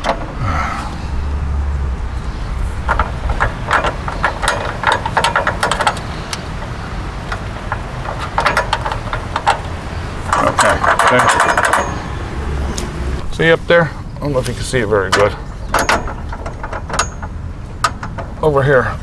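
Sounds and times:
small metal hardware clicking: 2.8 - 6.7, 10.3 - 12.1.

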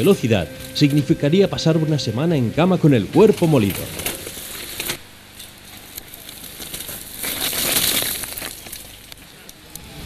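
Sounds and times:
bike and stones clattering: 3.4 - 9.4
gravel scraping rush: 5.7 - 9.2.

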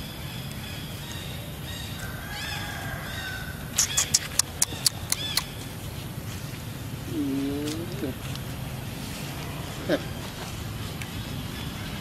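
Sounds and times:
high-pitched animal calls: 2.4 - 5.6.

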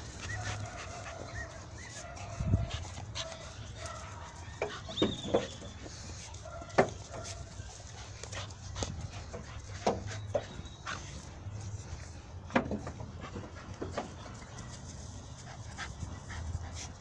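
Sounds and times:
puppies squeaking and whining: 0.0 - 3.1, 8.7 - 11.8.

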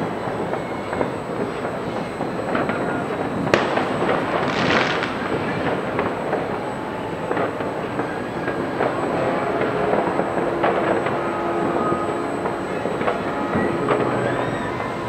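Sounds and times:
crackling firework burst: 0.0 - 15.0
distant fireworks popping and rumbling: 0.0 - 15.0
sharp firework bang: 0.5 - 6.7.

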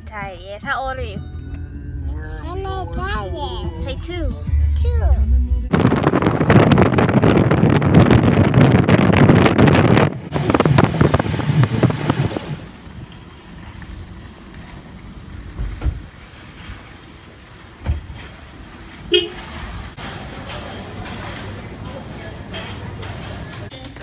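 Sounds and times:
wind buffeting microphone: 5.7 - 13.1.

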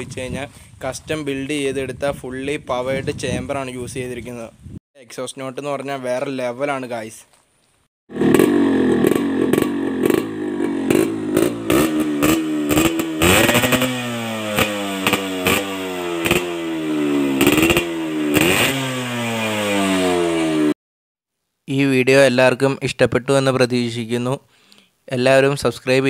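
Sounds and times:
exhaust pops: 8.1 - 14.0
two-stroke motorcycle revving: 8.1 - 20.8.

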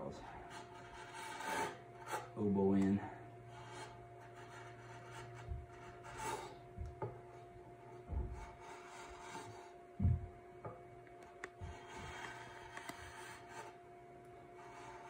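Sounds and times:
faint steady hum: 0.0 - 15.0
hand file scraping wood: 0.3 - 2.5, 3.5 - 6.6, 7.2 - 9.8, 11.6 - 13.8, 14.5 - 15.0
dull knocks: 5.4 - 5.9, 8.0 - 8.6, 10.0 - 10.8.

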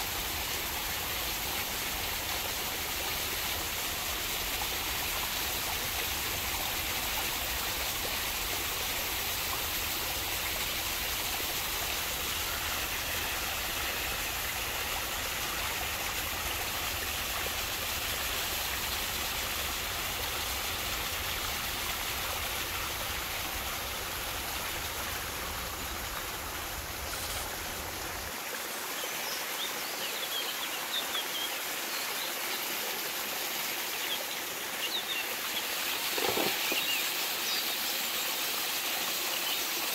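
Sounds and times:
stream and waterfall rushing: 0.0 - 39.9.

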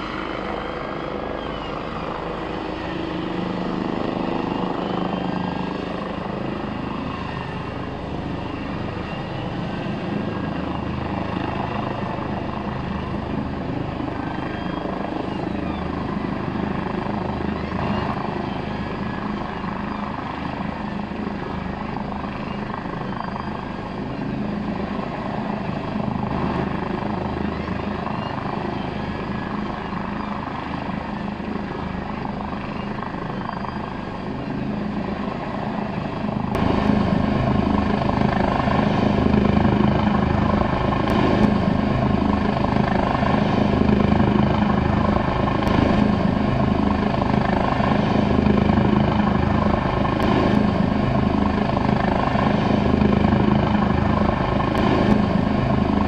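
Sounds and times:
helicopter rotor and engine: 0.0 - 56.0.

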